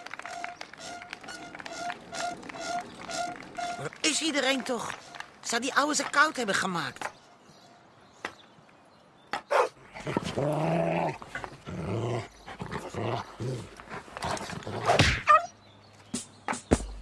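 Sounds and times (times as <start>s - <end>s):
dog barking: 9.5s - 9.8s
dog growling: 9.9s - 15.0s.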